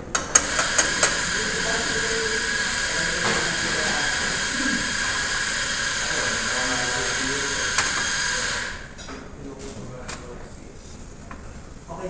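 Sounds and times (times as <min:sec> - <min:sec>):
pan hissing on gas stove: 0:00.4 - 0:09.0.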